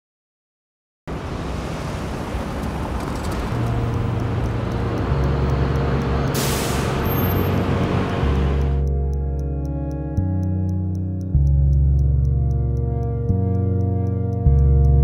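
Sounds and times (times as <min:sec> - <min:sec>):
city street traffic: 0:01.1 - 0:09.0
large vehicle engine rumble: 0:01.1 - 0:10.6
sharp hiss of air: 0:06.3 - 0:07.1.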